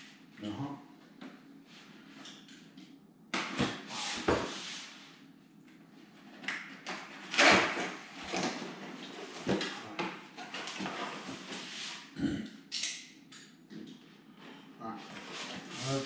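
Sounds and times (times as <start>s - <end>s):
cardboard boxes rustling and scraping: 15.1s - 16.0s.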